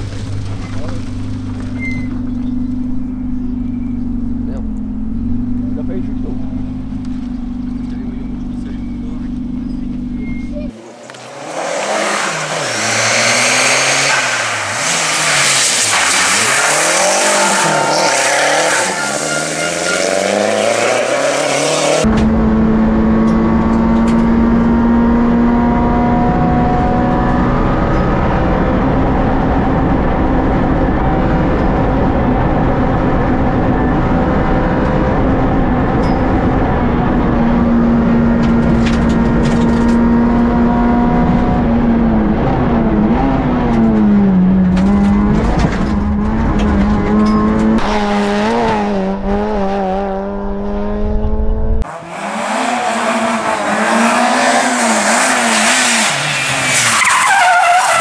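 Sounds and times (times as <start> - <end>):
road rumble: 0.0 - 58.0
car engine at high revs in cabin: 3.1 - 56.3
rally car engine revving past: 11.0 - 31.4, 36.6 - 57.1.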